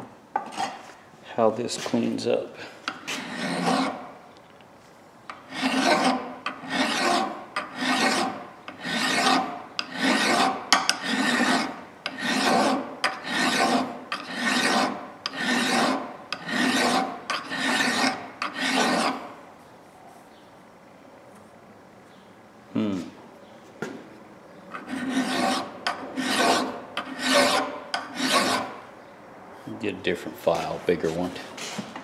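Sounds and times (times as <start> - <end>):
hand file rasping on metal: 3.0 - 4.0, 5.3 - 19.3, 24.8 - 28.8.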